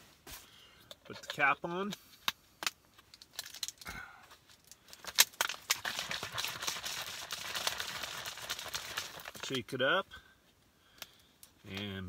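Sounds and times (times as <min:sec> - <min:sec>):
water bottle shaken: 0:04.6 - 0:09.5.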